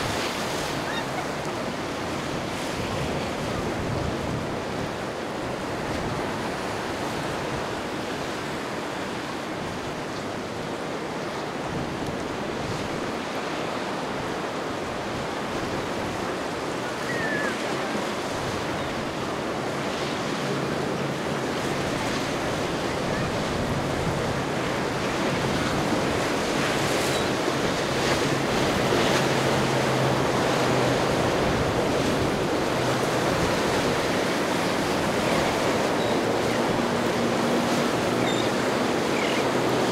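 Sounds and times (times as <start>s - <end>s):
wind buffeting microphone: 0.0s - 8.2s
boat engine hum: 0.0s - 39.9s
waves and surf: 0.0s - 39.9s.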